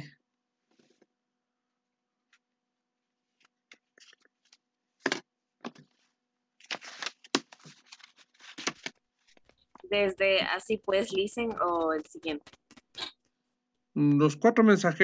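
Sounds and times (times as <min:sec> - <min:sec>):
rustling handling noises: 0:03.2 - 0:13.0.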